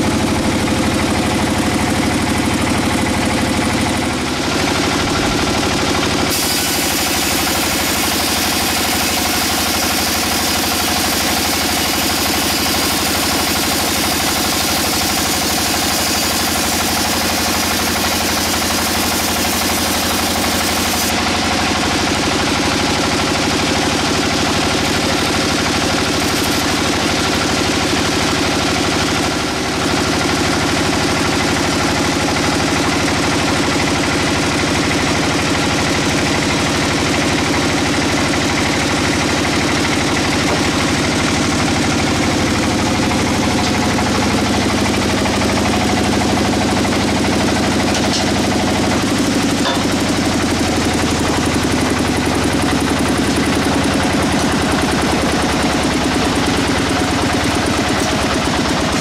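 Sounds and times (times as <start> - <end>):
band saw sawing through log: 4.2 - 27.6, 47.7 - 59.0.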